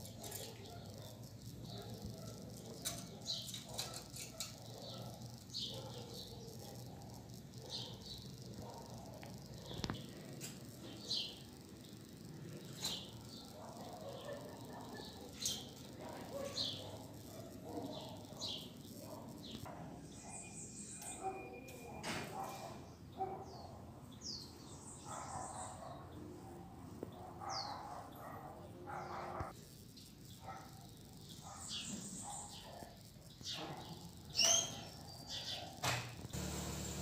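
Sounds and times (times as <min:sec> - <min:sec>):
birds chirping: 0:00.0 - 0:21.6.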